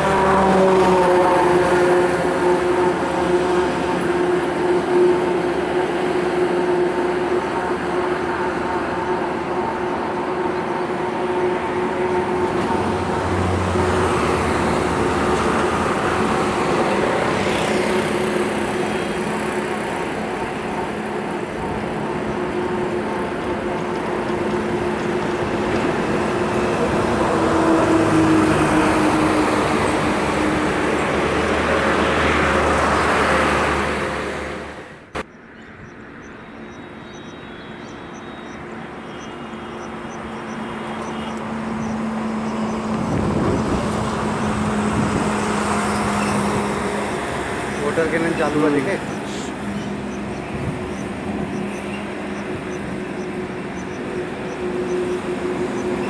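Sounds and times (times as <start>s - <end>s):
vehicles passing close by: 0.0s - 56.0s.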